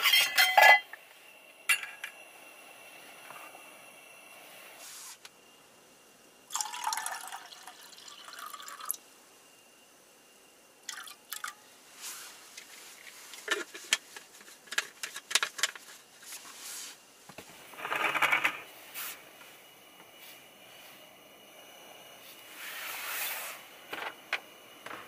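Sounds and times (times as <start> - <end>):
water pouring into kettle: 6.5 - 9.0, 10.9 - 11.6.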